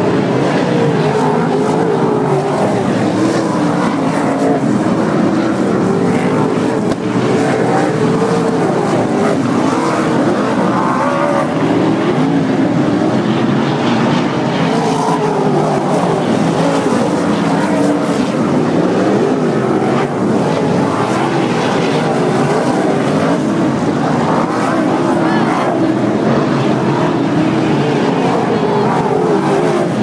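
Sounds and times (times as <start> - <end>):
race car engines roaring: 0.0 - 30.0.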